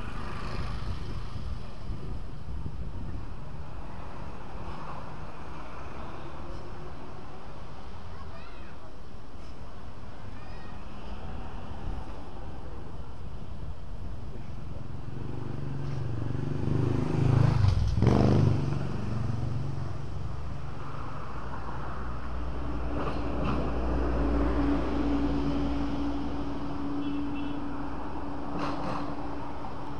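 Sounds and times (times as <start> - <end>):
motorbike passing by: 0.0 - 2.2, 14.6 - 21.2.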